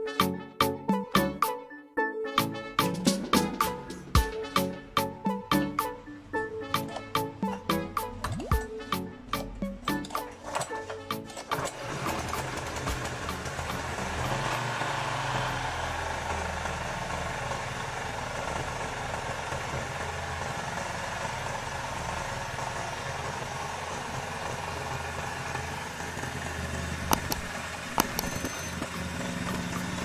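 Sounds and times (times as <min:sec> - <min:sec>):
small engine idling: 0:09.8 - 0:30.0
sharp clicks: 0:27.1 - 0:28.6.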